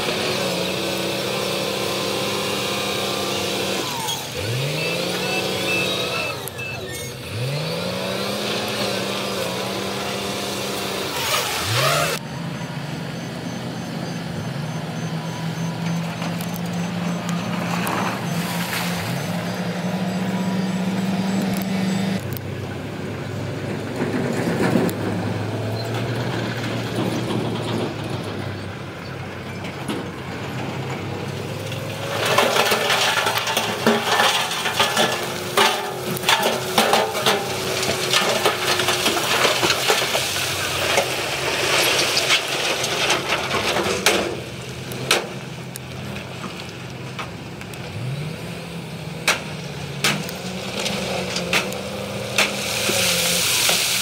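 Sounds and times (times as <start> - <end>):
diesel engines of heavy machines: 0.0 - 54.0
loose rock sliding and tumbling: 31.7 - 44.4, 50.2 - 54.0.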